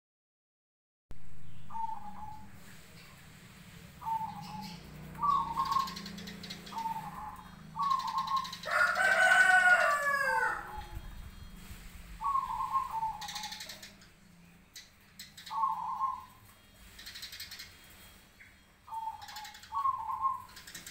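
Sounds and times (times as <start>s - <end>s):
doves cooing: 1.6s - 18.1s, 18.9s - 20.9s
rooster crowing: 8.6s - 11.0s.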